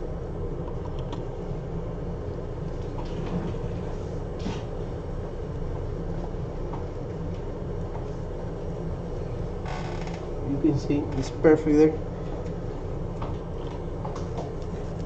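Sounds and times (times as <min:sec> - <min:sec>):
low mechanical rumble: 0:00.0 - 0:15.0.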